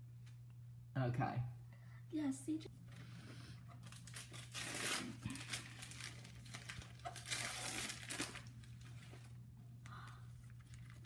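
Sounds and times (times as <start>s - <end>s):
wrapping paper tearing and crumpling: 3.8s - 9.3s, 10.4s - 11.0s.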